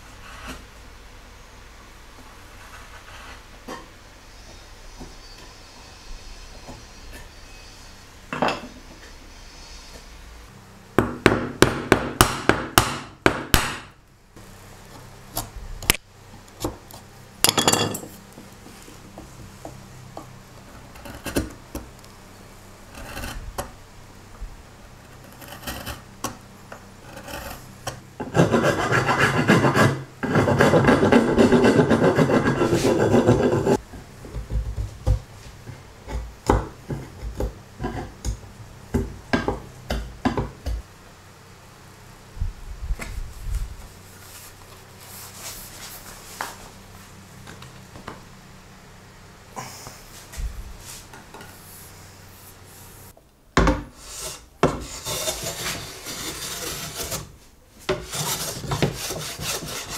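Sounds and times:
chisel cutting wood: 0:25.1 - 0:26.0, 0:27.0 - 0:33.8, 0:54.6 - 0:57.3, 0:57.9 - 0:59.9
rasping rubbing strokes: 0:27.0 - 0:33.8, 0:54.0 - 0:57.3, 0:57.9 - 0:59.9.

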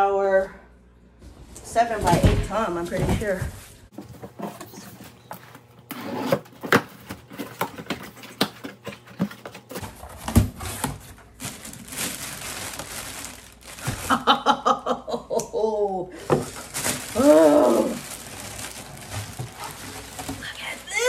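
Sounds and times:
cardboard flaps rustling: 0:02.9 - 0:14.3, 0:16.3 - 0:21.0.

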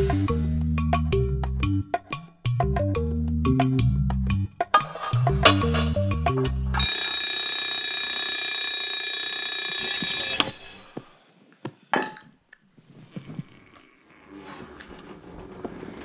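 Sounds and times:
alarm bell ringing: 0:06.8 - 0:10.8.

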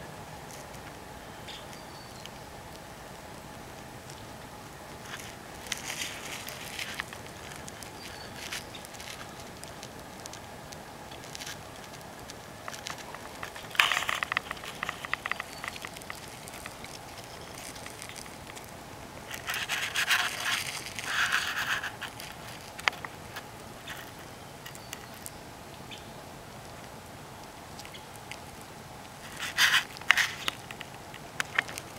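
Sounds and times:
rustling and crackling: 0:00.0 - 0:25.5, 0:26.5 - 0:31.9
steady low hiss: 0:00.0 - 0:31.9.

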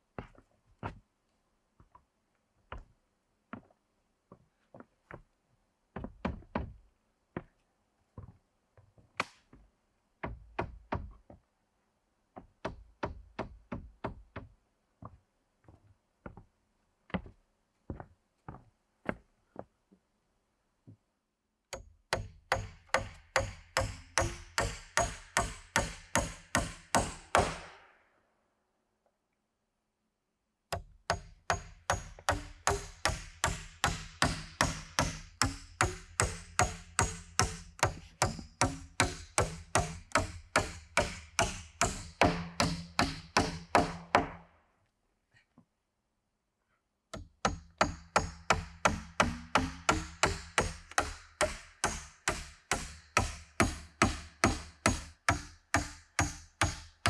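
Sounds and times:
hammer driving nails into wood: 0:21.7 - 0:27.8, 0:30.7 - 0:44.4, 0:47.2 - 0:57.0.

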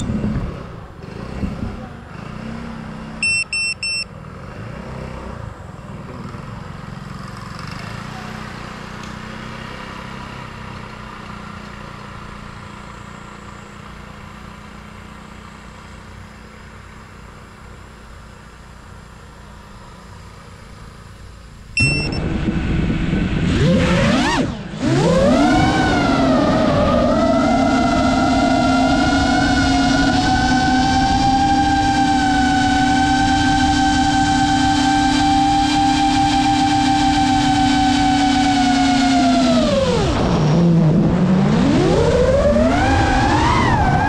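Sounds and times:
short electronic beeps: 0:03.2 - 0:04.1, 0:21.8 - 0:22.2
low steady hum: 0:15.9 - 0:23.5
drone motors whining: 0:19.7 - 0:44.0.

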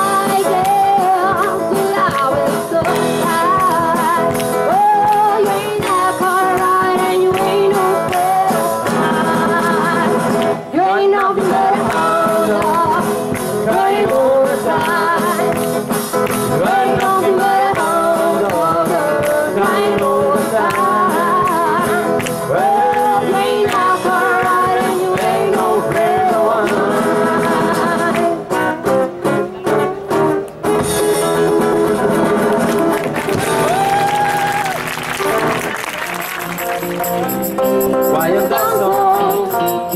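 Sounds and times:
person singing: 0:00.0 - 0:15.6, 0:16.5 - 0:28.8, 0:36.7 - 0:39.9.

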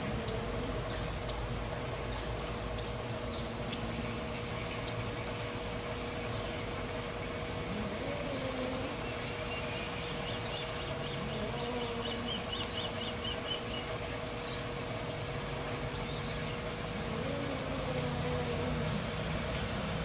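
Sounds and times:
steady background noise: 0:00.0 - 0:20.0
cats yowling and growling: 0:07.7 - 0:09.0, 0:17.0 - 0:19.0.

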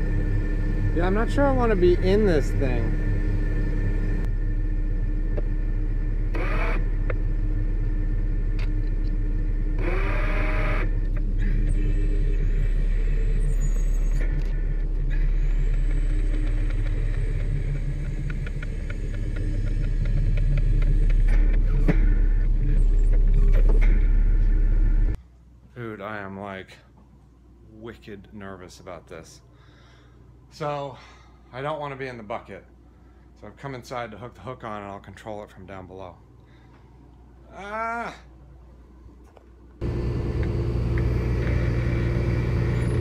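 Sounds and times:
hydraulic boom squeaks and whines: 0:00.0 - 0:25.2, 0:39.8 - 0:43.0
truck engine rumbling: 0:00.0 - 0:25.2, 0:39.8 - 0:43.0.

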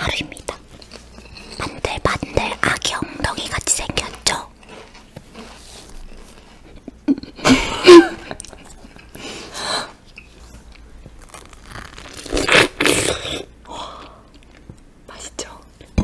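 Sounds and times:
chewing: 0:03.8 - 0:06.9
crunchy bite into fruit: 0:11.2 - 0:13.5.

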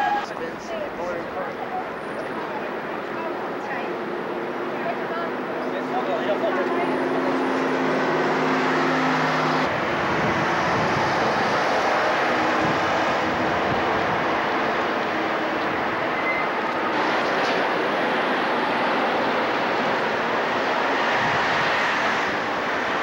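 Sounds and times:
city street traffic rushing: 0:00.0 - 0:23.0.

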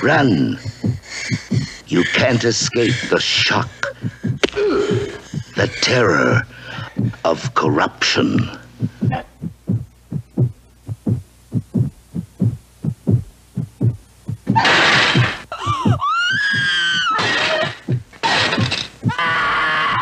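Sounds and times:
heartbeat-like thumps: 0:00.0 - 0:07.7, 0:08.3 - 0:19.4
woman screaming: 0:15.6 - 0:17.7, 0:19.0 - 0:20.0.

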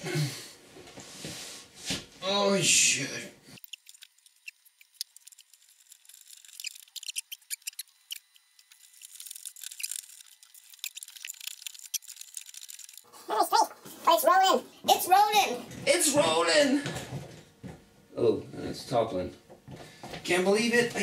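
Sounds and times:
short squeaks: 0:06.1 - 0:13.0.

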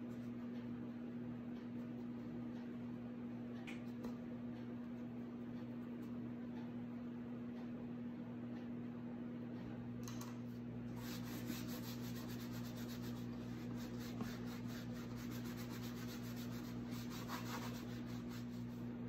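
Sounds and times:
cloth rag rubbing: 0:11.0 - 0:18.9.

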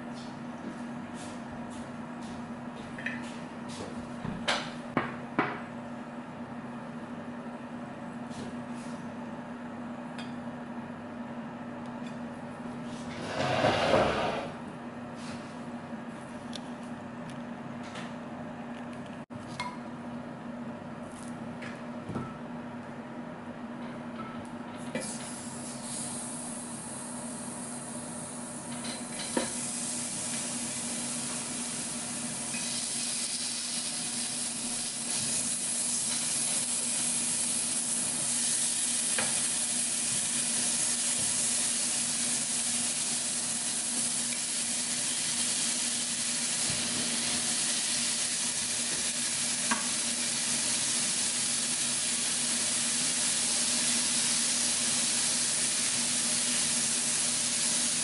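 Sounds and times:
meat sizzling on a grill plate: 0:32.6 - 0:58.0.

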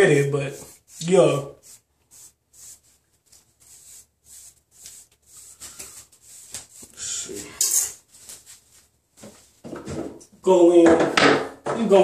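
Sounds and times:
brush swishing through hair: 0:00.5 - 0:09.5.

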